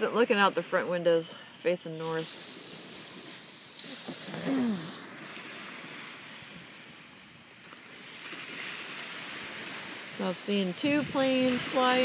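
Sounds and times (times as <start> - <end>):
surf washing on shore: 0.0 - 12.0.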